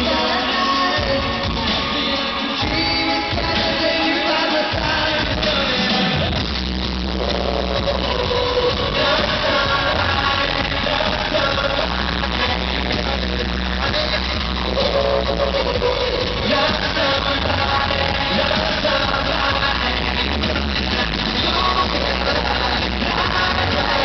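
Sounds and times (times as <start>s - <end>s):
amplified backing music: 0.0s - 24.0s
heavy bass: 0.0s - 24.0s
vocal group singing live: 0.0s - 24.0s.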